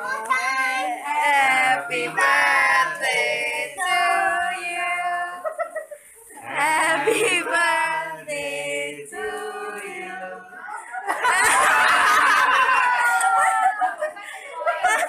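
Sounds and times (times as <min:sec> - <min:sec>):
group singing in unison: 0:00.0 - 0:05.6, 0:06.3 - 0:12.3
group cheering and talking: 0:09.1 - 0:15.0.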